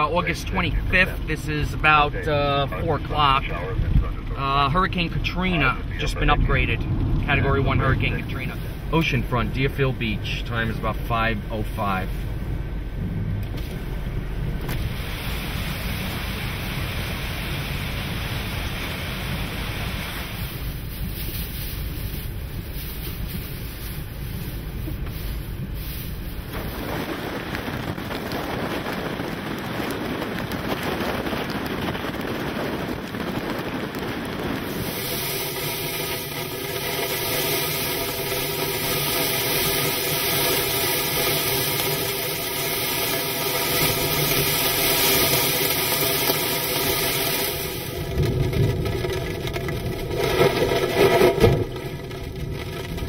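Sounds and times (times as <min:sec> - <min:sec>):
strong wind rushing: 0:00.0 - 0:53.0
wind-driven sand hissing: 0:14.7 - 0:48.2.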